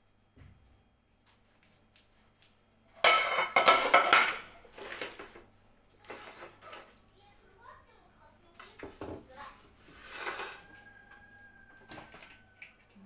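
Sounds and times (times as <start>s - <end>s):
metal pan clattering on plate: 3.0s - 4.5s.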